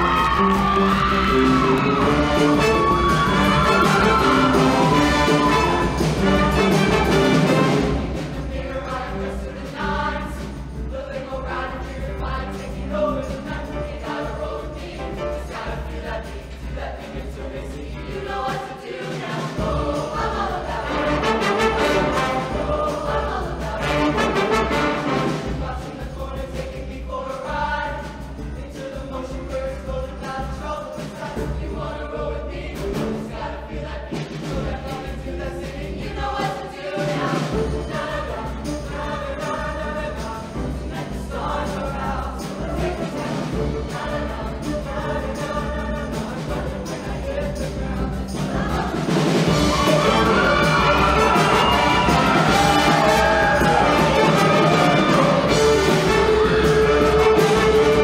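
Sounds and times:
live band playing: 0:00.0 - 0:08.6, 0:19.6 - 0:25.7, 0:48.1 - 0:58.0
choir singing: 0:00.0 - 0:58.0.

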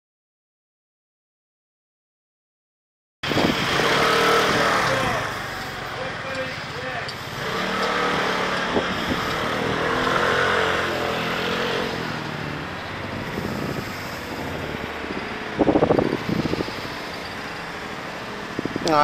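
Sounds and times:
pulsing engine burst: 0:03.2 - 0:18.1
motorcycle engine running: 0:03.2 - 0:19.0
wind and road noise: 0:03.2 - 0:19.0.

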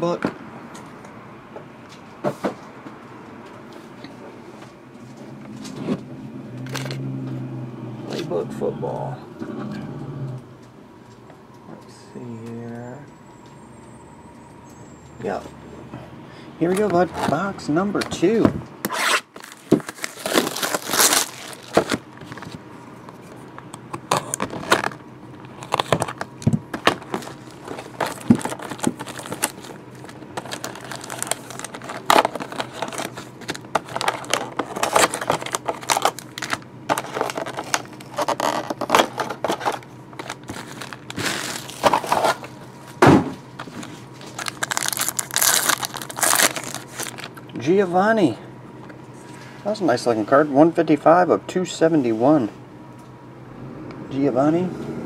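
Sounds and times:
cardboard rustling and tearing: 0:18.9 - 0:22.6, 0:24.1 - 0:42.5, 0:43.6 - 0:47.3
plastic wrapping crinkling: 0:19.0 - 0:22.6, 0:24.1 - 0:43.0, 0:43.6 - 0:47.4.

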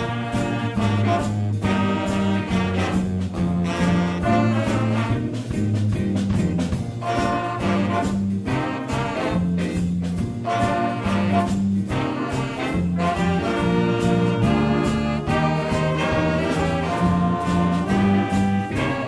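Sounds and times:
drum kit beat: 0:00.0 - 0:19.0
horns playing tune: 0:00.0 - 0:19.0.

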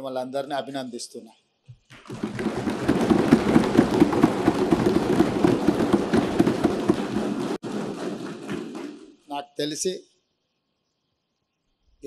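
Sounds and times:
people thumping wooden desks: 0:01.8 - 0:09.3.

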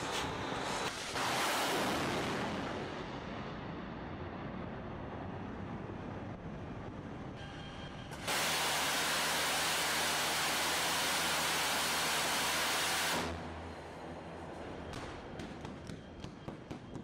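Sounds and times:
rocket motor rushing hiss: 0:08.1 - 0:13.5.

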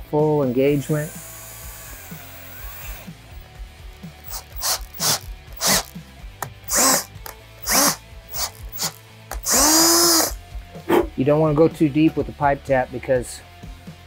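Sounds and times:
cordless drill whining: 0:00.4 - 0:10.4.

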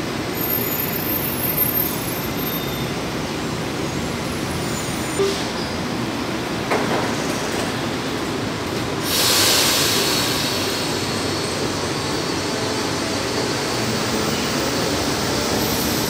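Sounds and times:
subway train running: 0:00.0 - 0:16.0
train doors air hiss: 0:08.8 - 0:16.0.

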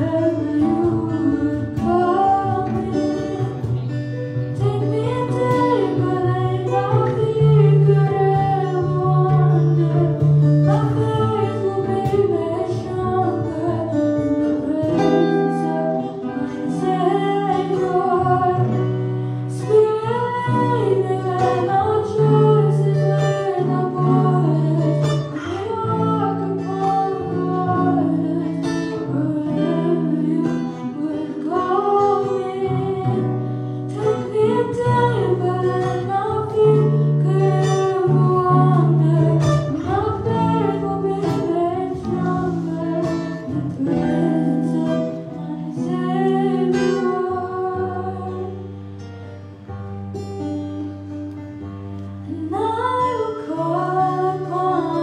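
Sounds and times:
girl singing into a microphone: 0:00.0 - 0:49.0, 0:52.1 - 0:55.0
acoustic guitar: 0:00.0 - 0:55.0.

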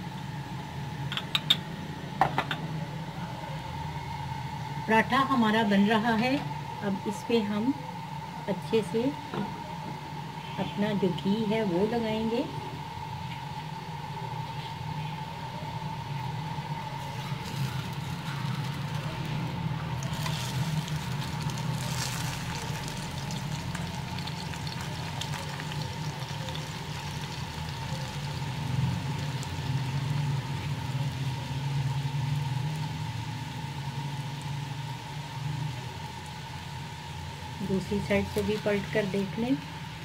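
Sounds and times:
steady low hum: 0:00.0 - 0:40.0
flatbread sizzling in ghee: 0:15.6 - 0:40.0.

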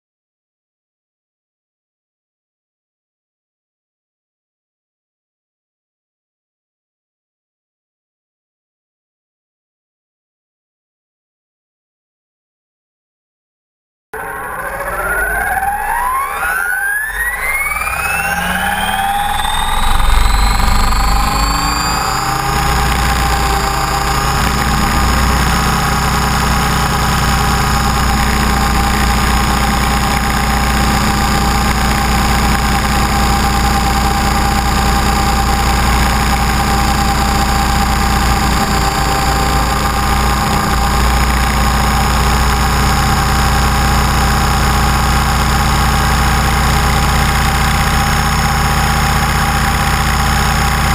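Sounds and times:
low rotor drone: 0:14.2 - 0:50.9
rc helicopter motor whine: 0:14.2 - 0:50.9.

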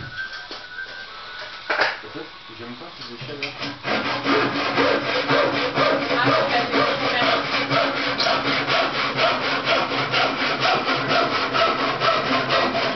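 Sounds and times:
handsaw cutting wood: 0:03.6 - 0:12.9.

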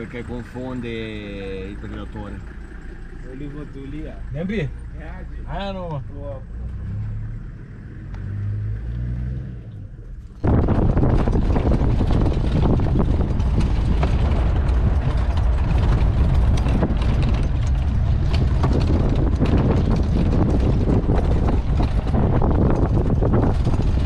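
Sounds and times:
vehicle engine and tyre rumble: 0:00.0 - 0:24.0
bodywork knocks and rattles: 0:10.2 - 0:24.0.

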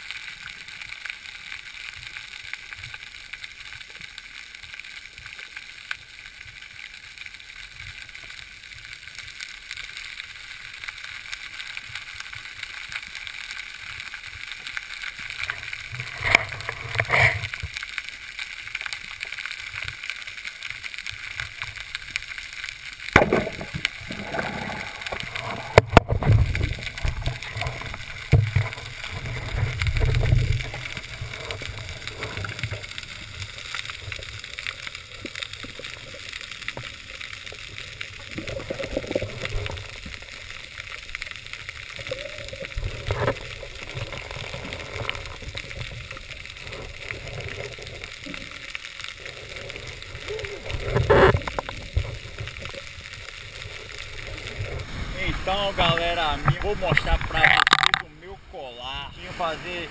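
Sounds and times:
underwater water hiss: 0:22.8 - 0:57.5.

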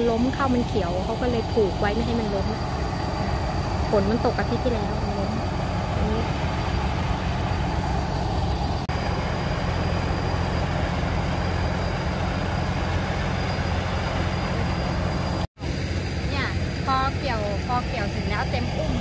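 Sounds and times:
harvester engine droning: 0:00.0 - 0:19.0.

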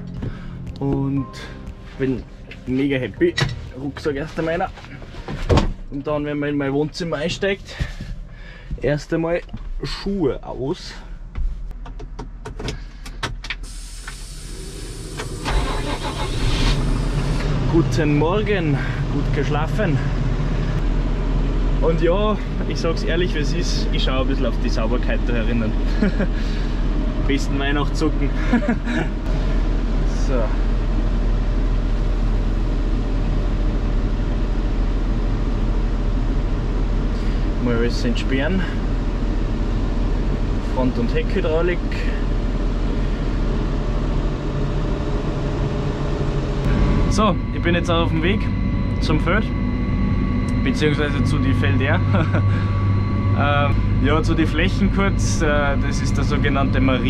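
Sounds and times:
tractor engine low hum: 0:12.7 - 0:57.0.

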